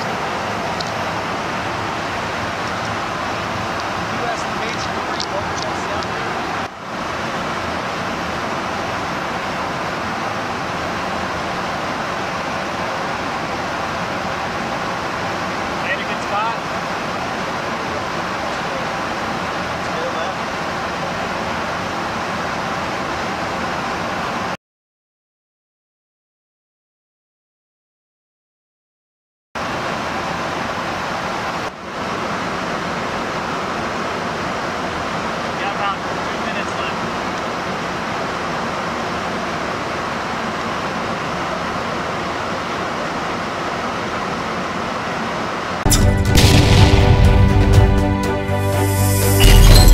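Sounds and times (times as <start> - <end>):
aircraft cabin roar: 0.0 - 10.4, 45.3 - 49.9.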